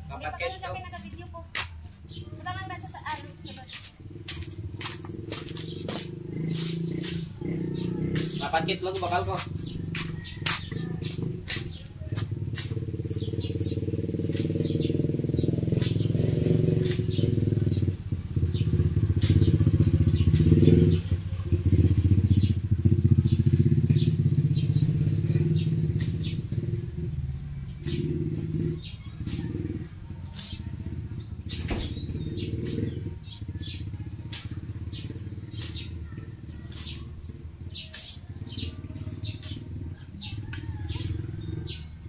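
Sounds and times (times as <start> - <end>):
bird chirping: 0.0 - 42.0
sharp ticks: 2.7 - 14.8.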